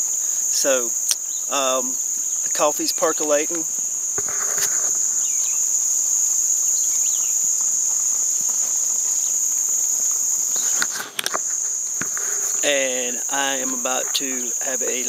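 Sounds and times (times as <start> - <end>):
insects chorus: 0.0 - 15.0
sharp clicks: 10.7 - 12.3.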